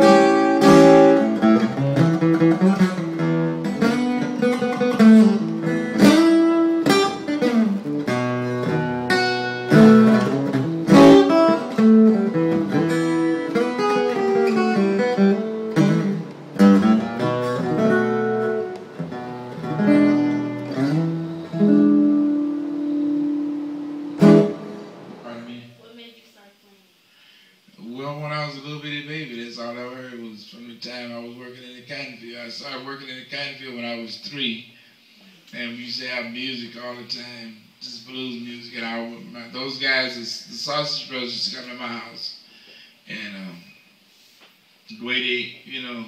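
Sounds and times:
acoustic guitar playing: 0:00.0 - 0:26.0.

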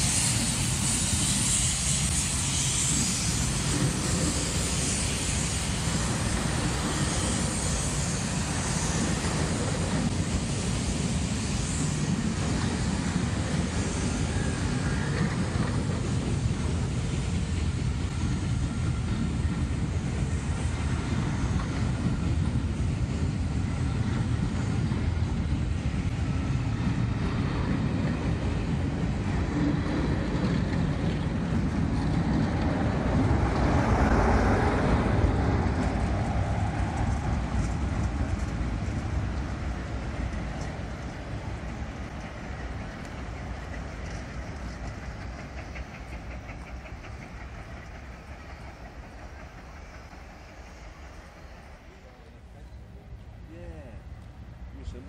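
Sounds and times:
train wheels clicking over track: 0:00.0 - 0:52.1
diesel locomotive passing: 0:00.0 - 0:55.0.

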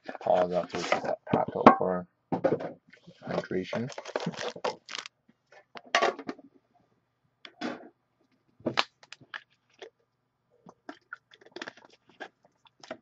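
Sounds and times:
crinkles and knocks: 0:02.4 - 0:06.5.

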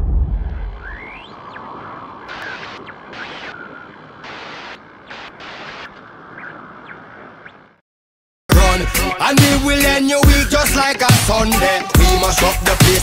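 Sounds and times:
deep boom: 0:00.0 - 0:01.2
hissing crackle: 0:00.8 - 0:06.1.

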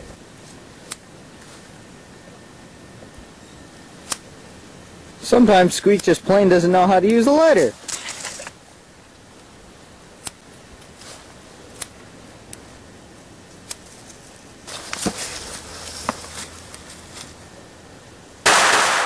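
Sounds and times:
rustling: 0:07.5 - 0:08.7, 0:10.8 - 0:11.8, 0:13.5 - 0:17.5
firecracker bang: 0:18.4 - 0:19.0.

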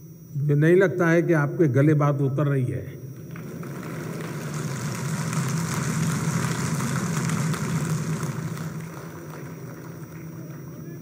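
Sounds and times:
large audience applauding: 0:03.2 - 0:11.0.

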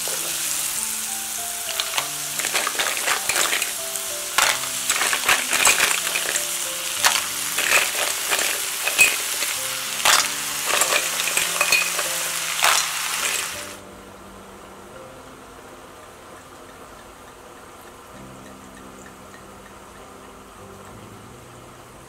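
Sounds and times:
mussels sizzling in a pot: 0:00.0 - 0:14.8
shells clattering against pot: 0:01.7 - 0:13.8.

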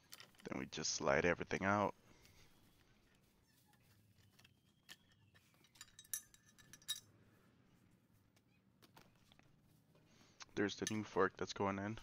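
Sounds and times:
metallic clicks and clinks: 0:04.4 - 0:07.1, 0:10.8 - 0:11.1.

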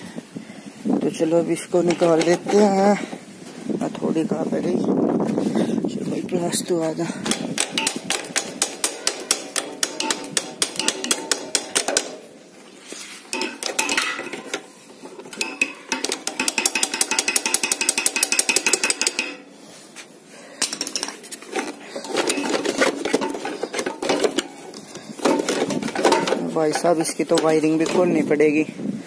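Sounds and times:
metal clinking and clicking: 0:07.2 - 0:12.3, 0:13.3 - 0:19.5.

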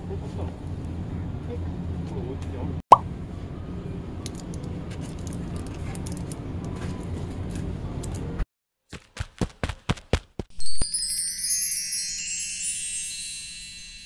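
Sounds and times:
shop interior hum: 0:00.0 - 0:08.4.

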